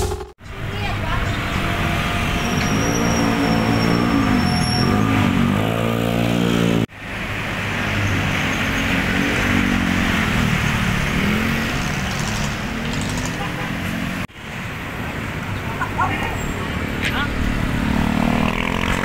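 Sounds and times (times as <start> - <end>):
wind and road noise: 0.0 - 19.0
motorcycle engine revving: 1.0 - 6.9, 8.4 - 14.3, 17.2 - 19.0.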